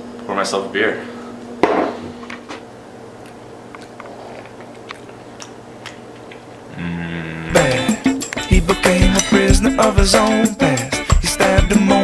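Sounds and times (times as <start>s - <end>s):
person chewing food: 3.2s - 6.7s.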